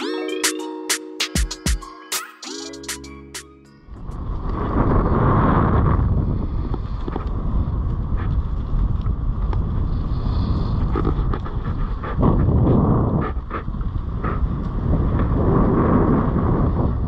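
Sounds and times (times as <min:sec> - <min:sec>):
wind rushing over microphone: 0:03.9 - 0:17.0.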